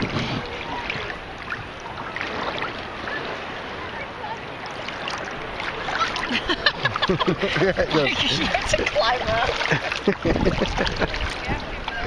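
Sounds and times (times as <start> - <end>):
wind on microphone: 0.0 - 3.6, 8.1 - 12.0
shallow water sloshing: 0.0 - 12.0.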